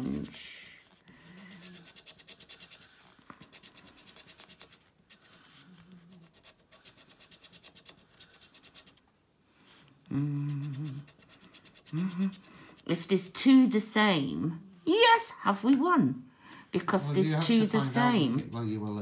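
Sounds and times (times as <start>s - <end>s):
person's voice: 0.0s - 0.7s, 16.8s - 19.0s
coin scraping scratch card: 1.5s - 5.5s.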